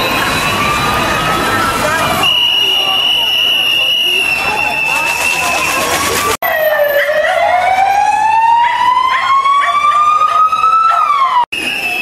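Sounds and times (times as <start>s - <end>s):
electronic siren wailing: 4.5s - 11.4s.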